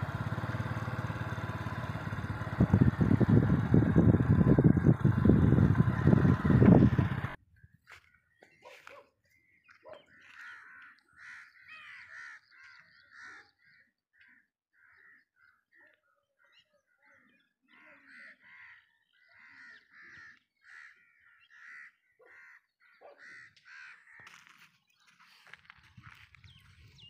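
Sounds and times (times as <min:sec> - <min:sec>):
crows cawing: 0:10.1 - 0:15.6, 0:17.0 - 0:24.7.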